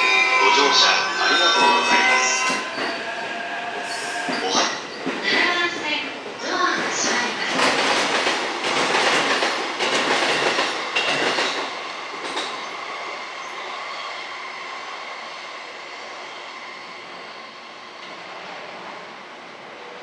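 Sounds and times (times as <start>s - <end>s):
train high whine: 0.0s - 5.1s, 9.4s - 20.0s
train wheels clattering over rail joints: 6.7s - 12.6s.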